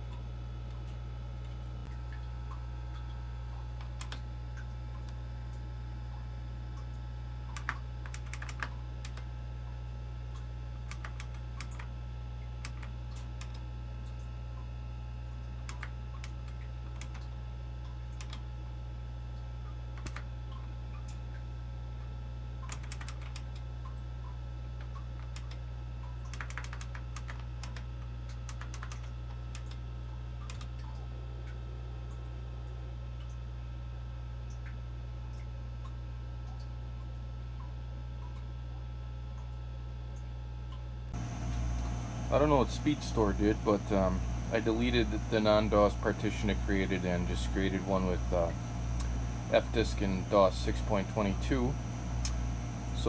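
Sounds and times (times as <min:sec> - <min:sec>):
computer low hum: 0:00.0 - 0:53.0
keyboard keystrokes clicking: 0:07.6 - 0:09.3, 0:10.9 - 0:11.9, 0:12.6 - 0:13.6, 0:15.6 - 0:17.3, 0:18.2 - 0:18.4, 0:20.0 - 0:20.3, 0:22.6 - 0:23.6, 0:24.8 - 0:25.6, 0:26.3 - 0:29.8, 0:30.4 - 0:30.9.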